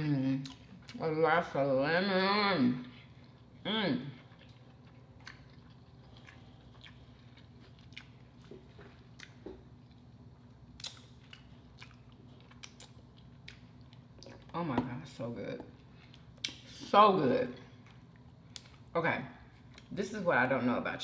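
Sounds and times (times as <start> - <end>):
faint chewing: 2.8 - 14.6
wet mouth clicks and smacks: 10.8 - 12.0.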